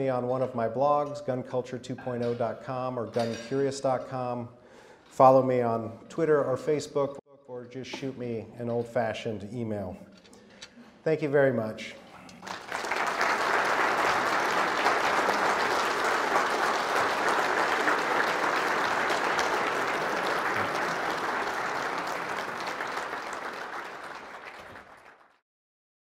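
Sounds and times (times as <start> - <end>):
audience applauding: 12.4 - 25.4.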